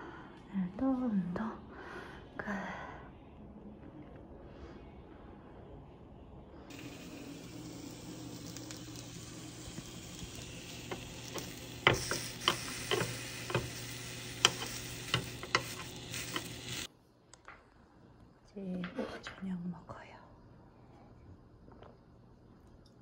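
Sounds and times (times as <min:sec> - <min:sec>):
low steady hum: 0:00.0 - 0:18.8
vegetables sizzling in a pan: 0:06.7 - 0:16.9
metal tongs clicking on pan: 0:14.4 - 0:16.6.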